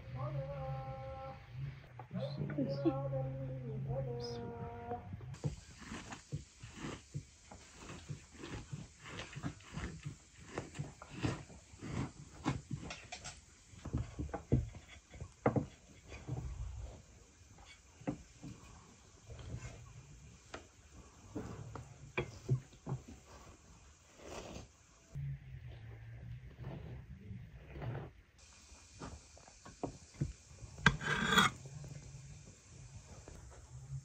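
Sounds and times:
knife cutting through cabbage: 5.4s - 13.4s.

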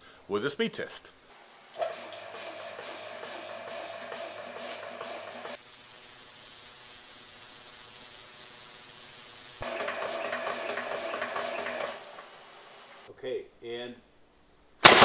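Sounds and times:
steady air hiss: 0.0s - 9.6s
air compressor pulsing: 1.8s - 6.1s, 9.1s - 12.2s.

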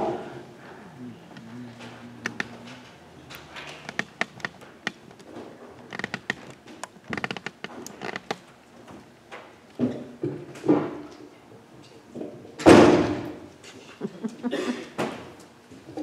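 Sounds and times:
faint low hum: 0.0s - 6.2s
footsteps and handling clicks: 1.4s - 9.8s.

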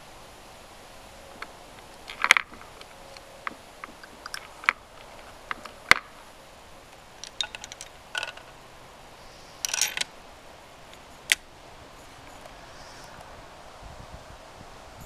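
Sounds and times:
rifle bolt clicking and rattling: 1.4s - 6.2s, 7.2s - 8.5s, 9.6s - 10.1s.

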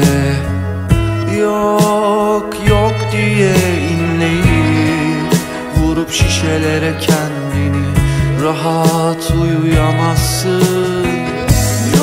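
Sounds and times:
pop music melody over bass: 0.0s - 12.0s
drum hits: 1.8s - 7.6s.

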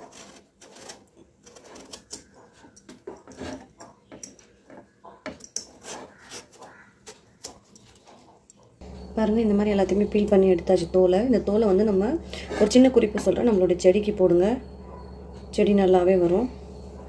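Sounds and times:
vegetable peeler scraping skin: 0.0s - 2.3s, 5.7s - 8.0s.

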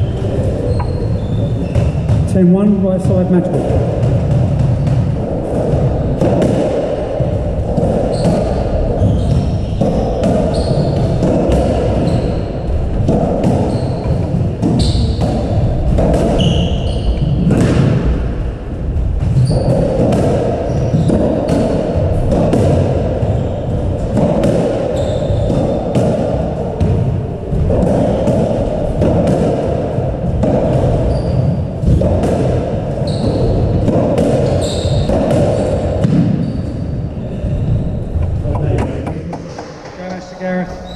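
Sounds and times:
shoes squeaking on floor: 0.0s - 2.3s, 8.1s - 11.2s, 12.0s - 12.7s, 13.6s - 17.5s, 19.3s - 19.9s, 20.7s - 21.3s, 23.3s - 23.7s, 24.9s - 25.8s, 31.0s - 31.6s, 33.0s - 33.6s, 34.4s - 39.5s
low rumble: 0.0s - 21.0s
squash ball hits: 0.8s - 36.9s.

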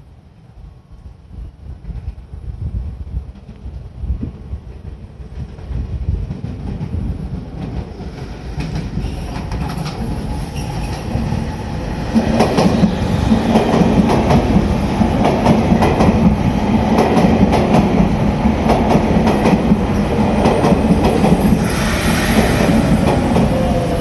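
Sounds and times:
train wheels clicking over rail joints: 4.6s - 11.4s.

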